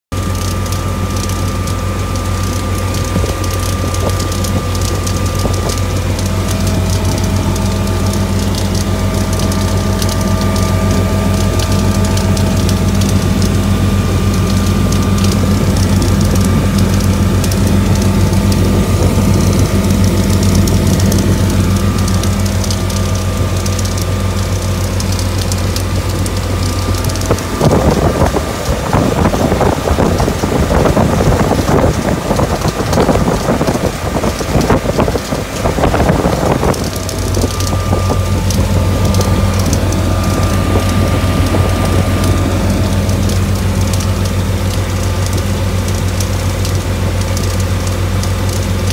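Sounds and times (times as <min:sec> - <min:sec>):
churning wake water: 0:00.0 - 0:48.9
motorboat engine drone: 0:00.0 - 0:48.9
rushing wind: 0:26.0 - 0:44.7.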